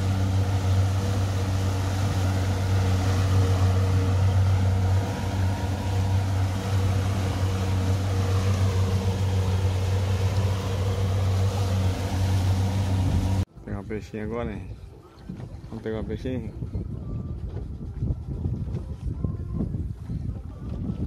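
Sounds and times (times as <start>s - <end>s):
boat engine droning: 0.0s - 13.8s
rush of boat wake: 0.0s - 21.0s
wind: 0.0s - 21.0s.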